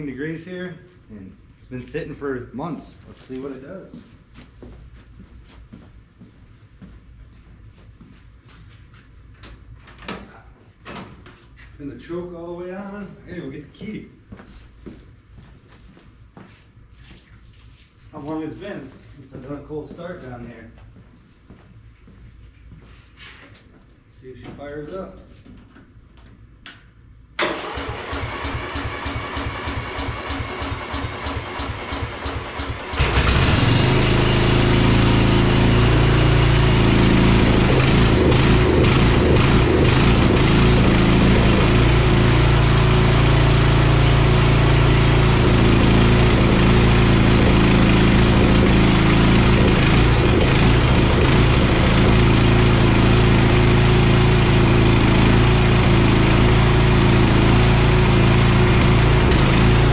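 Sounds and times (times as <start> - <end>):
lawn tractor engine cranking: 27.4 - 59.9
lawn tractor engine running: 27.4 - 59.9.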